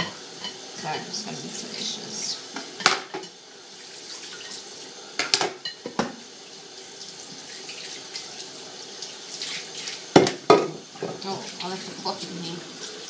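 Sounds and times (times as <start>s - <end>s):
dishes clattering: 2.6s - 3.4s, 10.1s - 11.3s
dishes clinking in a sink: 2.6s - 3.4s, 5.2s - 6.2s, 10.1s - 11.4s.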